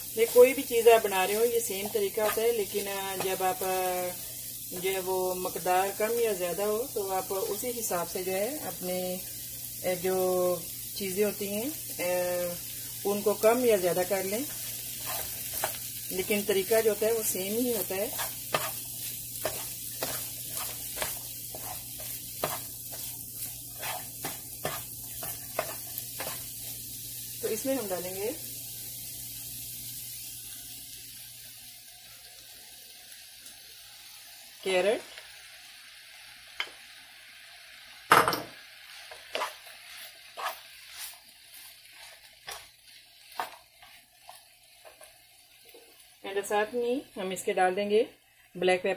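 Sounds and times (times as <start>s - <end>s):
vegetables sizzling in frying pan: 0.0s - 48.9s
spatula scraping pan: 14.2s - 26.5s, 38.9s - 45.2s.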